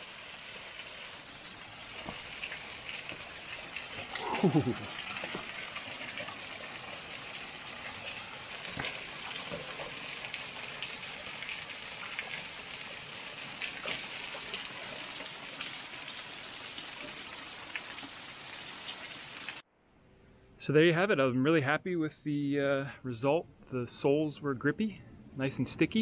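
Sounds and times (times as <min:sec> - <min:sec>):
water drips: 0:00.0 - 0:19.6
waterfall splashing onto rocks: 0:00.0 - 0:19.6.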